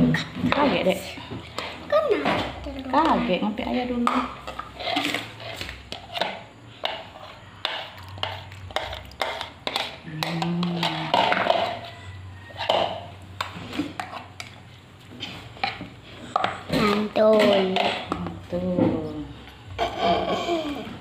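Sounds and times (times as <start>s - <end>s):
metal spoon scraping and knocking: 4.0s - 14.6s, 15.2s - 18.4s.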